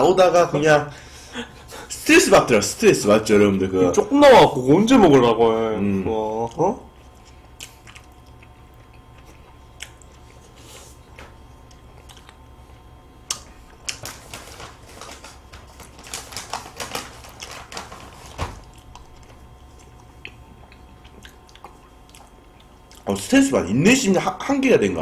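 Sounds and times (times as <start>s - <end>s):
paper wrappers crinkling: 13.5s - 20.0s.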